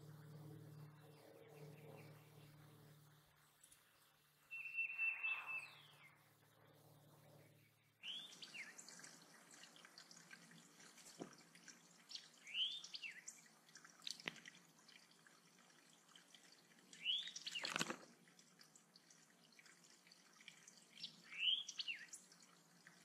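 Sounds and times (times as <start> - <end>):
short bird chirps: 4.5 - 6.2
wild birds calling: 7.4 - 10.8, 11.9 - 14.0, 16.5 - 18.0, 20.9 - 22.4
water trickling and dripping: 8.0 - 23.0.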